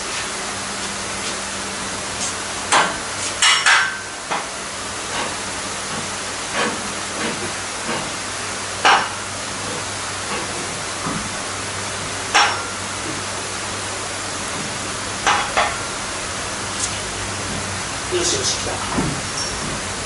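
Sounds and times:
steady background hiss: 10.6s - 20.0s
metal clanks and knocks: 18.8s - 20.0s.

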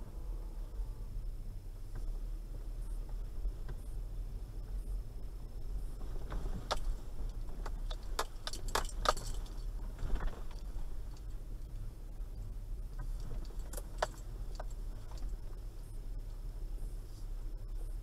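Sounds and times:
car engine and tyres rumbling: 0.0s - 18.0s
light clicks and rattles: 6.0s - 11.9s, 12.5s - 15.8s.

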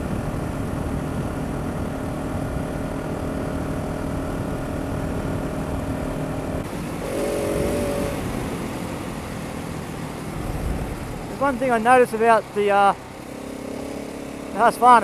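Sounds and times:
motorcycle engine: 0.0s - 15.0s
wind rush: 6.7s - 12.2s.

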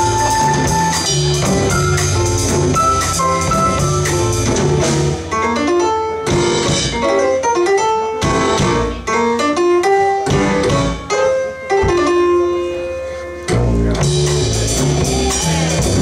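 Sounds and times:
double bass: 0.0s - 5.5s, 10.3s - 16.0s
drum kit: 0.0s - 16.0s
piano: 0.0s - 16.0s.

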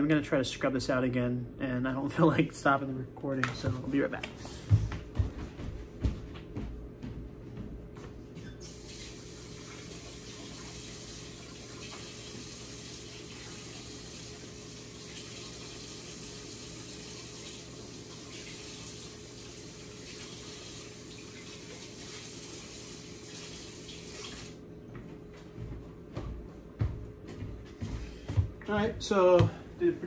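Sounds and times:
steady low hum: 0.0s - 11.8s, 24.6s - 30.0s
faucet water running into sink: 8.6s - 24.6s.

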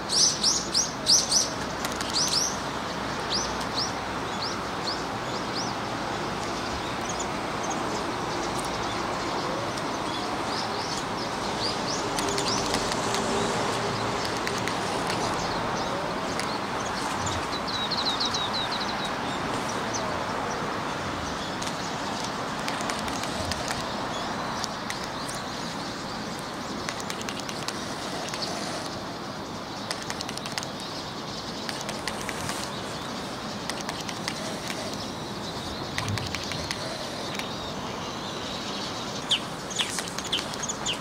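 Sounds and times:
outdoor background hiss: 0.0s - 41.0s
faint clicks: 12.1s - 13.3s, 21.6s - 24.0s, 24.6s - 25.5s, 26.3s - 29.0s, 29.8s - 30.8s, 31.6s - 32.8s, 33.6s - 35.1s, 36.0s - 37.6s
high bird chirps: 29.8s - 41.0s.

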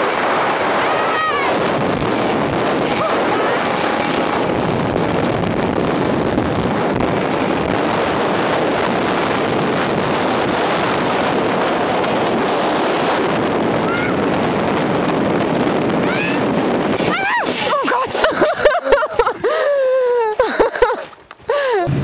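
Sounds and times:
wind buffeting microphone: 0.0s - 22.0s
person screaming: 17.1s - 18.3s.

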